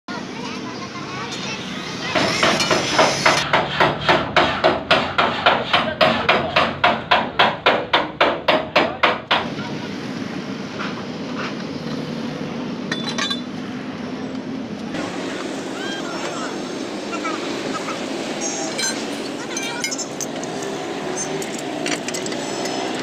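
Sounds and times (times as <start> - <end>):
hammer beating sheet metal: 2.1 - 9.5.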